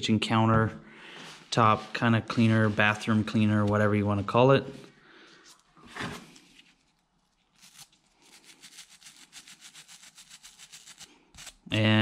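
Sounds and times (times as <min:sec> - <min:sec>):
brush scrubbing metal: 0:08.2 - 0:11.5.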